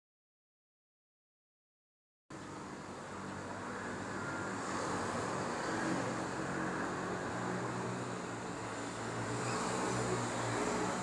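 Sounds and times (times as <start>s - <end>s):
steady mechanical hum: 2.3s - 11.0s
rushing noise: 2.4s - 11.0s.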